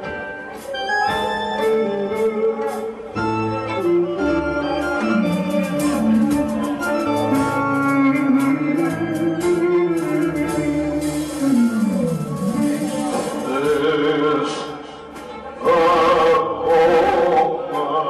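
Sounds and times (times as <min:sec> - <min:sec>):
rhythmic beat: 0:00.0 - 0:15.4
strummed strings: 0:00.0 - 0:17.4
clarinet melody: 0:00.8 - 0:14.1.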